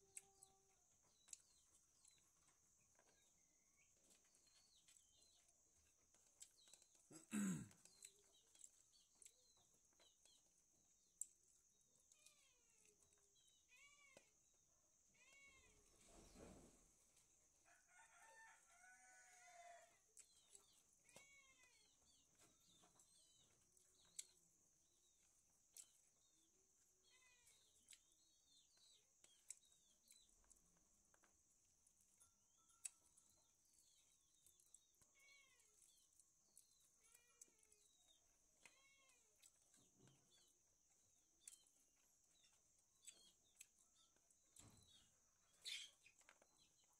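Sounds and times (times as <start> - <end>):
chickens chirping and clucking: 44.6 - 46.6.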